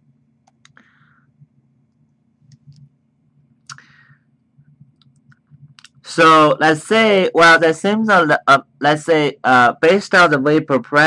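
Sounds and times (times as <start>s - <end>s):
low steady hum: 0.0s - 11.0s
faint clicks and taps: 4.6s - 6.0s.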